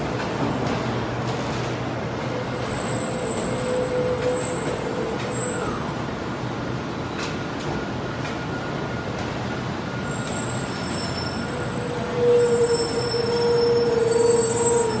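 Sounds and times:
train rolling with steady rumble: 0.0s - 15.0s
wheels squealing: 10.0s - 15.0s.

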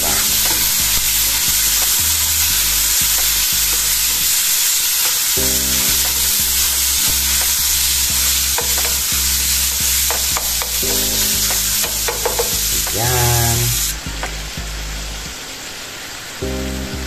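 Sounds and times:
vegetables sizzling in a frying pan: 0.0s - 14.8s
spatula clicking against pan: 8.6s - 9.1s, 10.1s - 12.6s.

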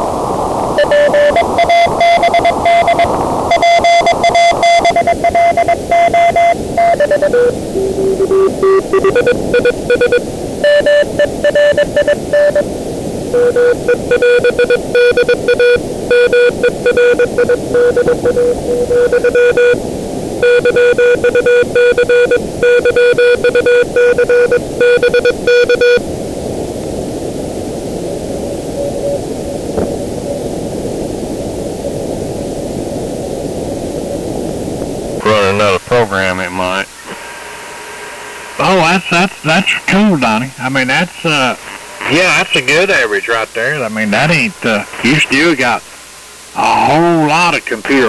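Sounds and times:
radio receiver hiss: 0.0s - 48.0s
morse code tone: 0.8s - 12.7s, 13.3s - 19.8s, 20.4s - 26.0s.

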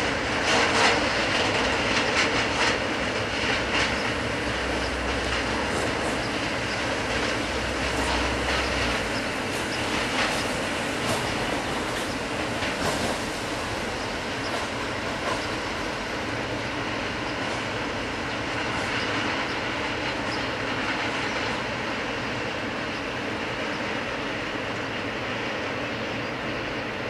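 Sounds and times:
train wheels rumbling on track: 0.0s - 27.0s.

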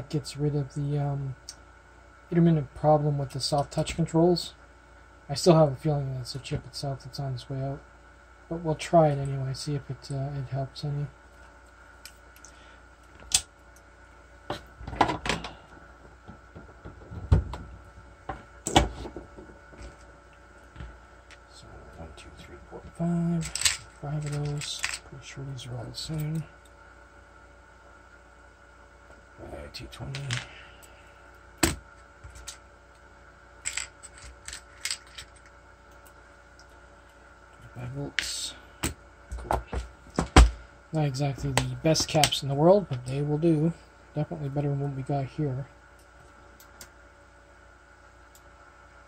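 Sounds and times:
small parts clicking on a workbench: 23.4s - 25.1s.

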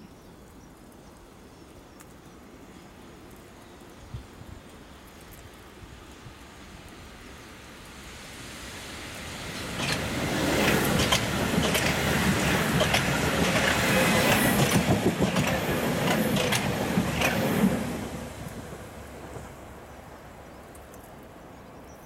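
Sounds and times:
train passing: 5.7s - 21.9s
wheels clicking over rail joints: 9.2s - 19.6s.

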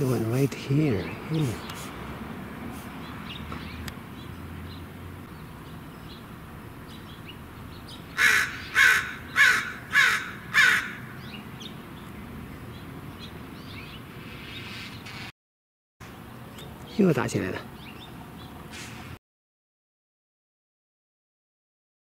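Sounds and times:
crow cawing: 8.2s - 11.2s.

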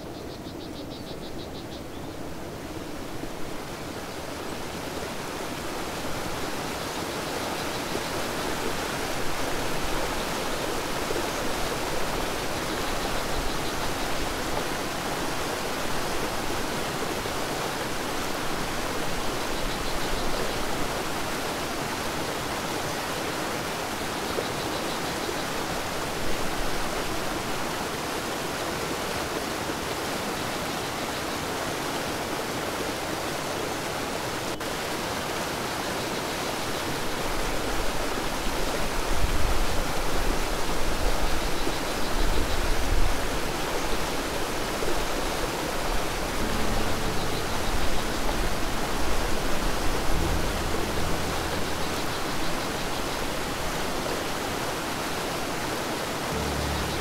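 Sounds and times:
river rushing: 2.1s - 57.0s
uneven low water rumble: 45.3s - 55.6s, 56.2s - 57.0s.

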